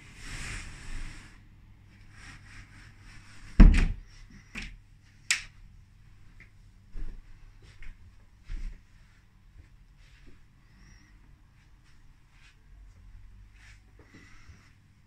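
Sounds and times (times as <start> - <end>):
footsteps on carpet: 6.2 - 10.4.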